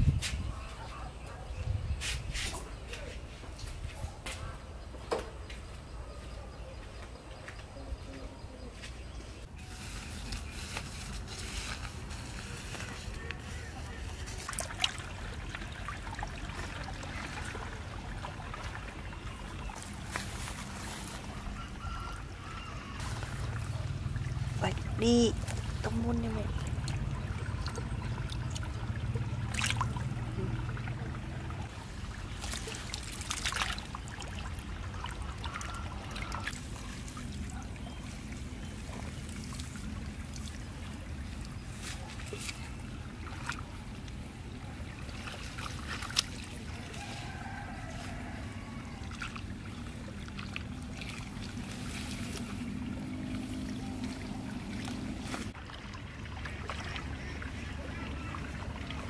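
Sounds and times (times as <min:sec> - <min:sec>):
ditch water trickling and splashing: 0:07.1 - 0:59.0
grass rustling being handled: 0:09.5 - 0:14.6, 0:19.8 - 0:21.6, 0:41.6 - 0:42.8, 0:51.4 - 0:52.8, 0:54.8 - 0:55.6
steady low rumble: 0:23.0 - 0:32.4.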